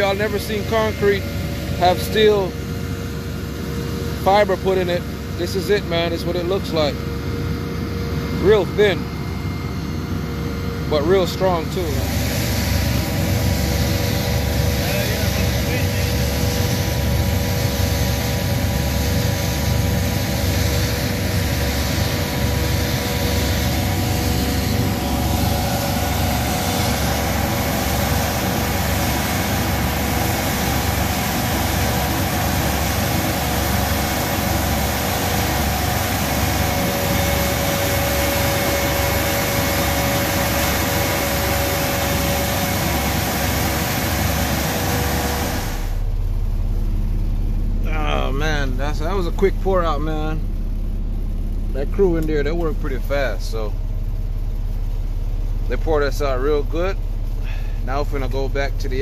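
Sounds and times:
diesel truck engines running: 0.0 - 59.0
machine steady whine: 0.0 - 59.0
muffled engine rumble inside cab: 0.0 - 59.0.

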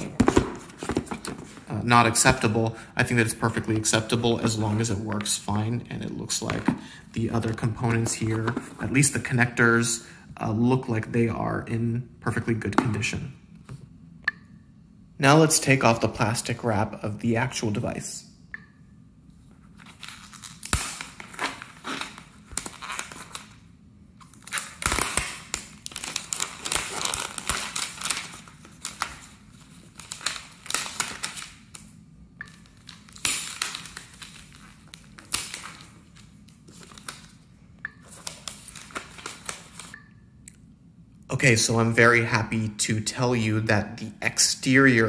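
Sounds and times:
plastic wrap crinkling: 19.8 - 23.6, 24.2 - 31.8.

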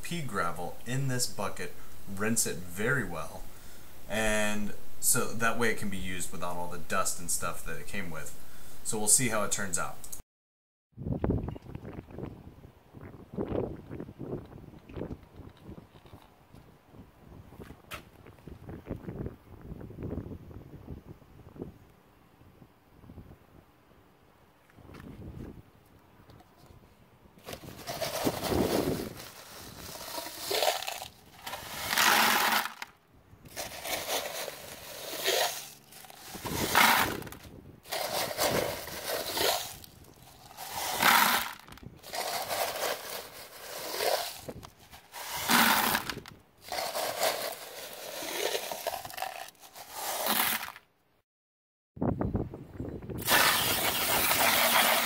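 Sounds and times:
gravel poured into plastic bucket: 27.4 - 32.9, 33.5 - 50.8
plastic cup scooping gravel: 27.4 - 32.9, 33.5 - 50.8, 53.2 - 55.0.

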